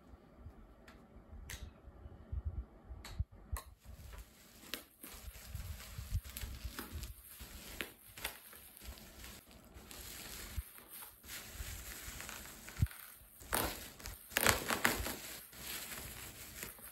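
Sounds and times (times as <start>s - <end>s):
bubble wrap crinkling: 3.8s - 16.9s.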